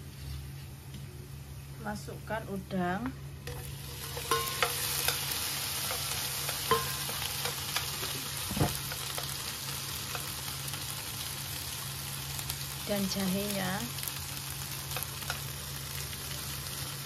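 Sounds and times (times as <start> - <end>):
prawns sizzling in hot oil: 3.4 - 17.0
utensils knocking against pan: 3.5 - 9.4.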